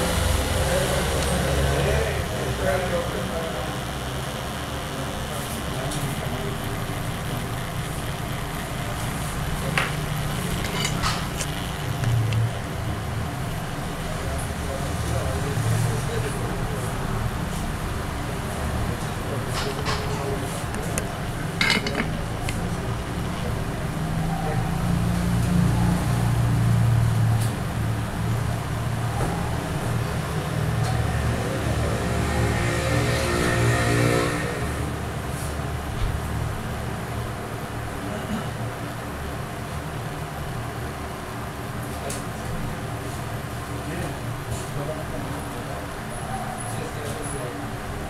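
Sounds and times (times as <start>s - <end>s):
hot-air rework station blowing: 0.0s - 26.7s.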